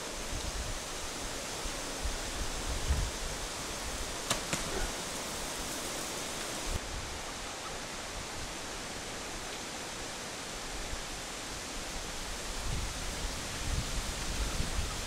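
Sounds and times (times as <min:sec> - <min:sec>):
outdoor hiss: 0:00.0 - 0:15.0
bow string snaps: 0:04.3 - 0:04.8.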